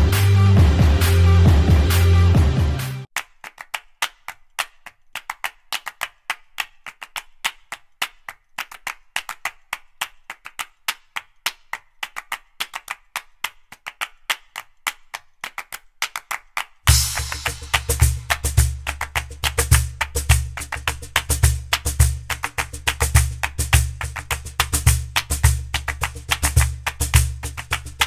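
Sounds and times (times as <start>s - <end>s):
sharp dry percussion clicks: 16.9s - 28.0s.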